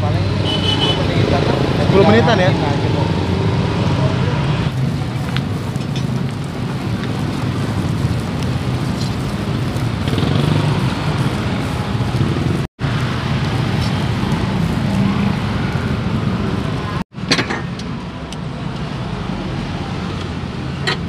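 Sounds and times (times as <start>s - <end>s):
faint crackling from grill: 4.7s - 15.4s.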